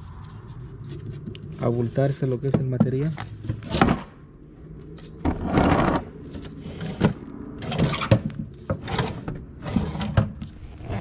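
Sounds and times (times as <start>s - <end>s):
wooden drawer sliding: 6.6s - 10.4s.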